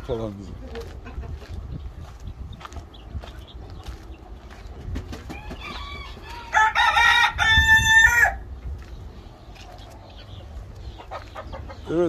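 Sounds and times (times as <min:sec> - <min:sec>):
chicken clucking: 0:00.0 - 0:06.6, 0:08.9 - 0:12.0
rooster crowing: 0:05.3 - 0:08.4.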